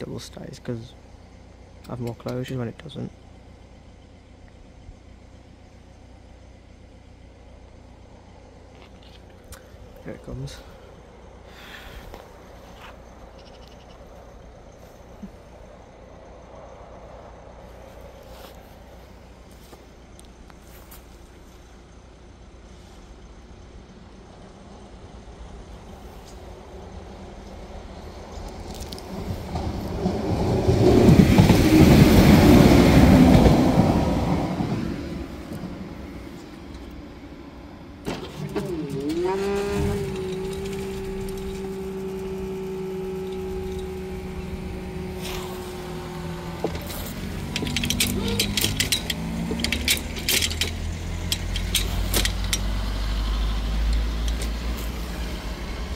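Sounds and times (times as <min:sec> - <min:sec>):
car engines rumbling: 0:00.0 - 0:55.9
passenger train passing: 0:25.0 - 0:38.1, 0:39.0 - 0:55.9
barrier motor humming: 0:29.2 - 0:55.9
clicks and knocks: 0:46.6 - 0:52.8.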